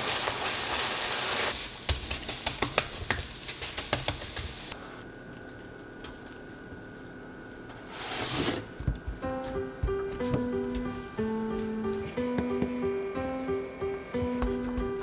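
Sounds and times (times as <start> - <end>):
music: 9.1 - 15.0.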